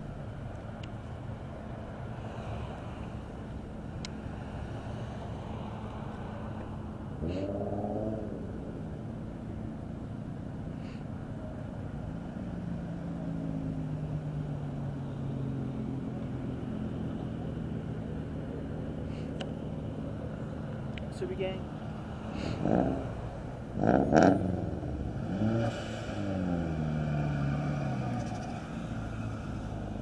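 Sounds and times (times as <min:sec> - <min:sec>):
car engine low drone: 0:00.0 - 0:30.0
car engines running: 0:00.0 - 0:30.0
engine revving: 0:07.2 - 0:08.8, 0:22.3 - 0:30.0.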